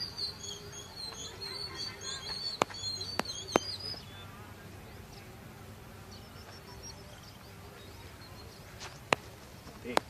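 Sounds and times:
high repeated chirping: 0.0s - 4.4s
faint outdoor background: 0.0s - 10.0s.

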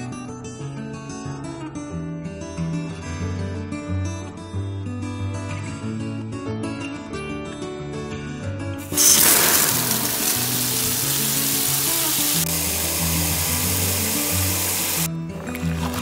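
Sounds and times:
acoustic guitar music: 8.8s - 16.0s
water jet spraying: 8.8s - 16.0s.

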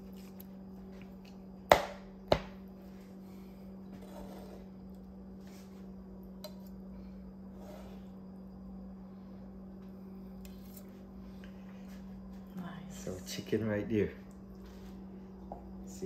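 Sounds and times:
steady low hum: 0.0s - 16.0s
knife chopping on cutting board: 1.7s - 2.5s.

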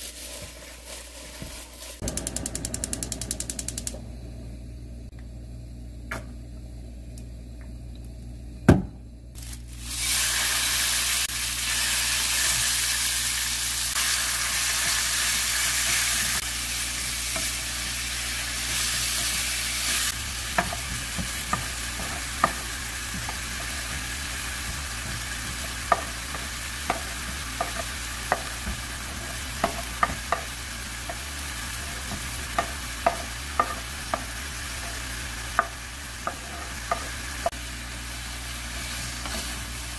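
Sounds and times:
wooden spatula stirring: 0.0s - 2.0s
oil sizzling in frying pan: 0.0s - 2.2s, 9.4s - 39.9s.

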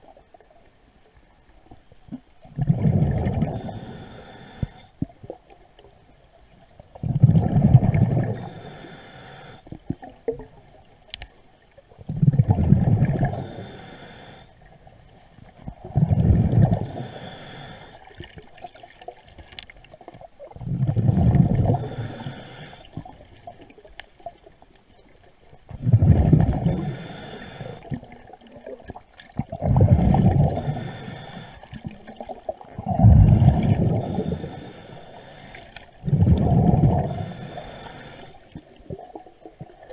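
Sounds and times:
bubble exhalations underwater: 2.5s - 3.6s, 7.0s - 8.4s, 12.1s - 13.4s, 15.7s - 16.9s, 20.6s - 21.8s, 25.7s - 26.9s, 27.9s - 30.8s, 31.8s - 34.4s, 36.0s - 37.2s
regulator inhale hiss: 3.4s - 5.0s, 8.2s - 9.8s, 13.2s - 14.6s, 16.6s - 18.3s, 21.6s - 23.2s, 26.5s - 28.0s, 30.3s - 32.0s, 33.6s - 36.0s, 36.8s - 38.6s.

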